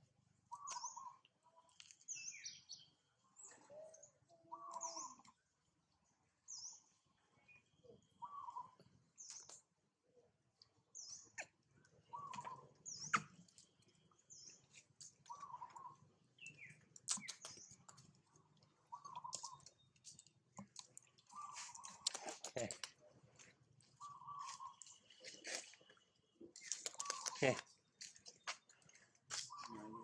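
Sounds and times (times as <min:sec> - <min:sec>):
birds chirping faintly: 0:00.1 - 0:30.0
lower short bird calls: 0:07.8 - 0:09.5, 0:11.2 - 0:13.4, 0:29.4 - 0:30.0
sharp clicks: 0:17.0 - 0:18.0.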